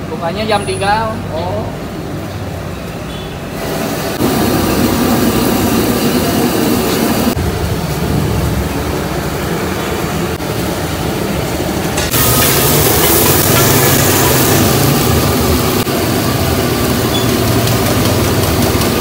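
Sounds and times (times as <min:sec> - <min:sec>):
gas burner rushing: 0:03.5 - 0:19.0
steam hissing off wok: 0:03.6 - 0:08.2, 0:08.8 - 0:19.0.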